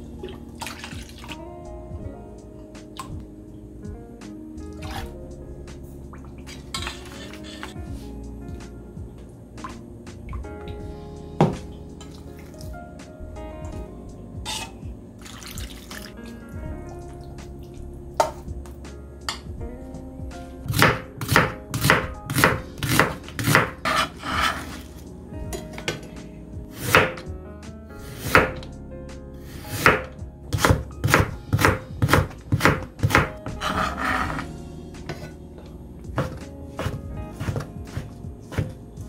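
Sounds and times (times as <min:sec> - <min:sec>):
knife slicing carrots on board: 0:20.7 - 0:24.9, 0:26.7 - 0:27.2, 0:28.1 - 0:28.6, 0:29.6 - 0:34.4, 0:36.2 - 0:38.8.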